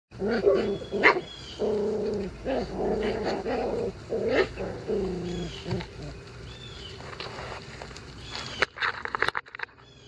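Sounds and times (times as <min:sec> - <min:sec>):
puppies yipping and whining: 0:00.3 - 0:06.9.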